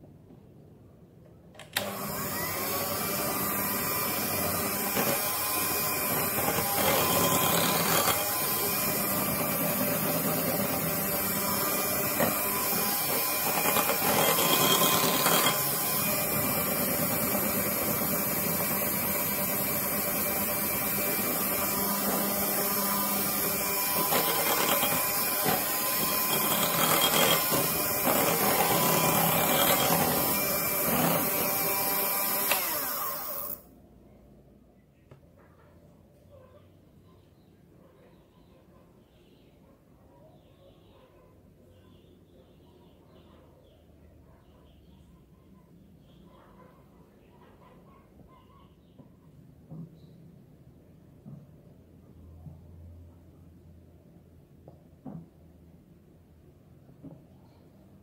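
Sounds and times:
electric hand mixer whisking batter: 0:01.8 - 0:33.6.

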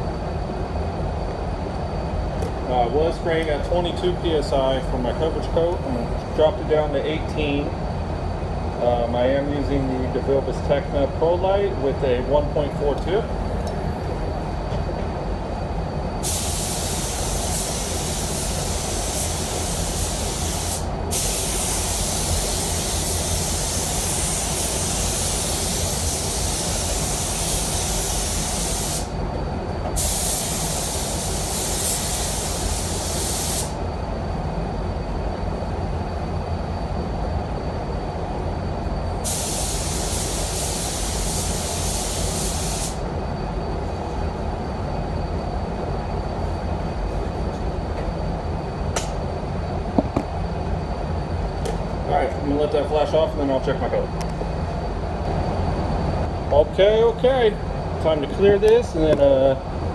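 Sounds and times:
steady low rumble: 0:00.0 - 0:25.2, 0:29.1 - 0:31.6, 0:32.6 - 0:40.0, 0:43.0 - 0:59.9
paint spray gun hissing: 0:16.2 - 0:29.1, 0:30.0 - 0:33.8, 0:39.2 - 0:43.0.

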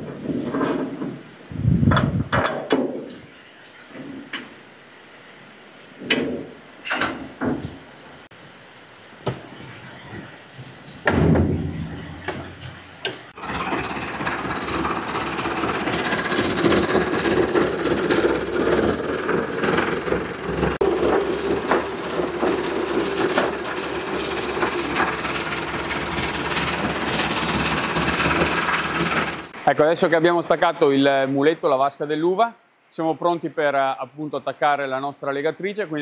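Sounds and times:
tractor engine running: 0:11.7 - 0:29.6.

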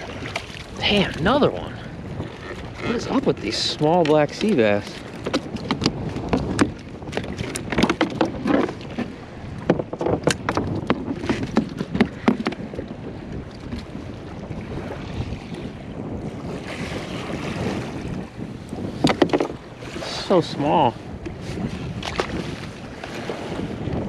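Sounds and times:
wind on microphone: 0:00.0 - 0:24.0
clicks and knocks of fish handling: 0:02.4 - 0:12.7, 0:19.0 - 0:19.6, 0:22.0 - 0:22.7.

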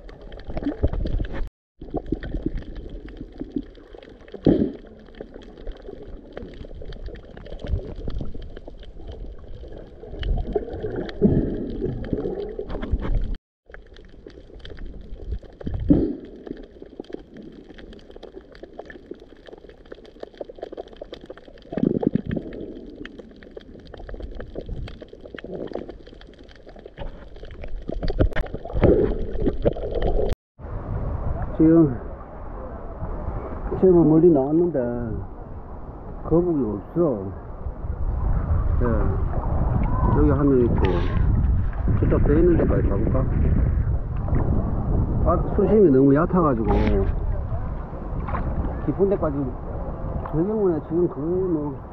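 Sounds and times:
crackle of small clicks underwater: 0:00.0 - 0:30.3
water gurgling against microphone: 0:00.0 - 0:51.9.

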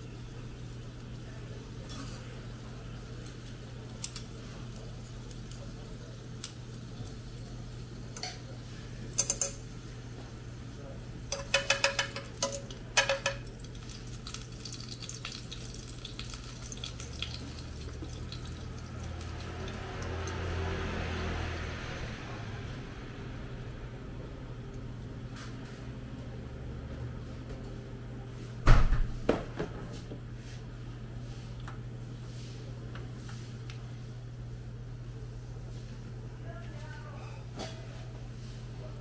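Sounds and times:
chopsticks clinking on frying pan: 0:09.2 - 0:09.6, 0:11.3 - 0:13.8
fat sizzling: 0:11.3 - 0:21.0.

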